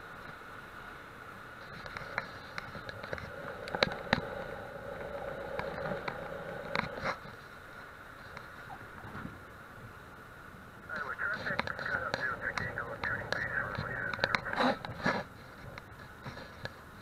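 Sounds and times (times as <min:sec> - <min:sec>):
light aircraft engine droning: 0:00.0 - 0:17.0
sharp clicks and knocks: 0:11.5 - 0:15.0.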